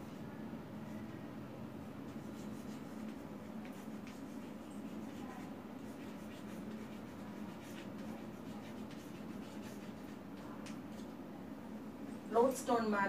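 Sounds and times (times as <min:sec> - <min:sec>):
steady low hum: 0:00.0 - 0:13.0
chalk writing on blackboard: 0:02.0 - 0:11.0.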